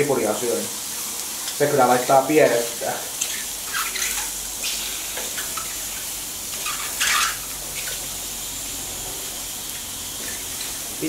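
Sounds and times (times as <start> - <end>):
mushrooms and onions sizzling: 0.0 - 11.0
mushrooms squeaking: 3.6 - 4.8.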